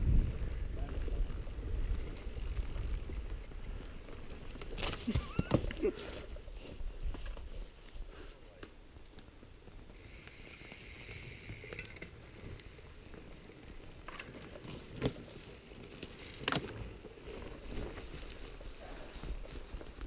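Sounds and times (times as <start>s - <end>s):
bike tyres on rocky trail: 0.0s - 20.0s
steady hiss: 9.8s - 14.1s.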